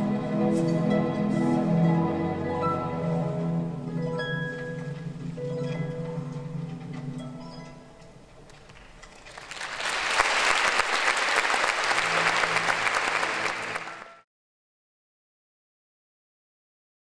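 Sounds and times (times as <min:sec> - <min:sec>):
orchestra playing: 0:00.0 - 0:07.2, 0:11.8 - 0:14.2
audience applauding: 0:09.2 - 0:14.2.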